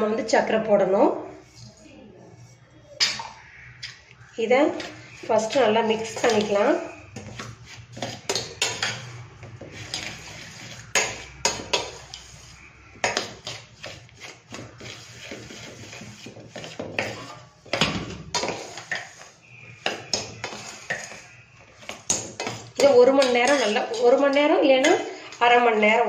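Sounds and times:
spoon scraping steel vessel: 1.3 - 4.0, 4.7 - 25.7.

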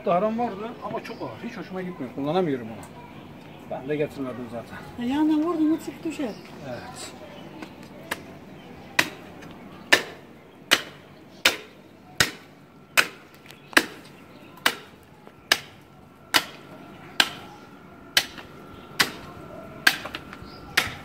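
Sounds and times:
cleaver chopping bones: 9.9 - 16.6, 17.2 - 17.5, 18.2 - 21.0.

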